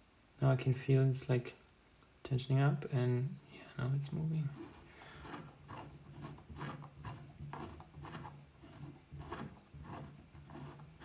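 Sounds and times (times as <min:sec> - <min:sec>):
milling table slide scraping: 0:04.4 - 0:11.0.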